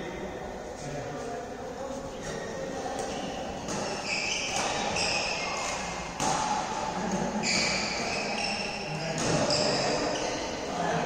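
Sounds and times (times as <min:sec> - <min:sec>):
shoe squeaks: 0:02.2 - 0:05.9, 0:07.4 - 0:10.6
racket striking shuttlecock: 0:03.0 - 0:08.2, 0:09.1 - 0:10.0.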